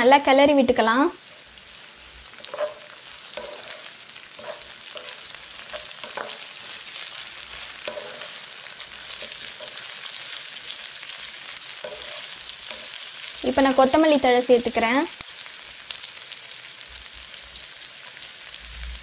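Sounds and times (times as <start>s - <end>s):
onions sizzling in hot oil: 0.0s - 19.0s
wooden spatula scraping pan: 2.4s - 6.8s, 7.5s - 10.0s, 11.8s - 13.0s.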